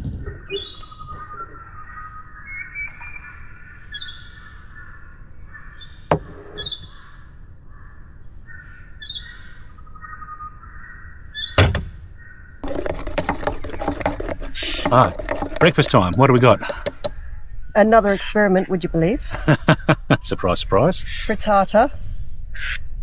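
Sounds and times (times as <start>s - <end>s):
birds chirping: 0.0s - 21.9s
clattering handling noise: 12.6s - 17.1s.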